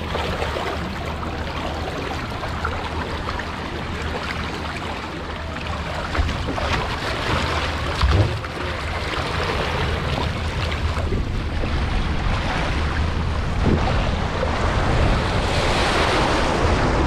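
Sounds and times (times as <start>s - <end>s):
water rushing down slide: 0.0s - 17.0s
low thump: 8.0s - 8.5s.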